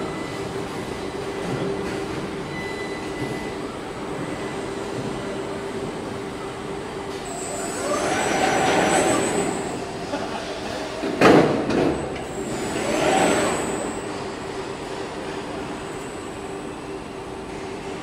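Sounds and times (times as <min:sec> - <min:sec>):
whirring machine with high whine: 0:06.4 - 0:09.9.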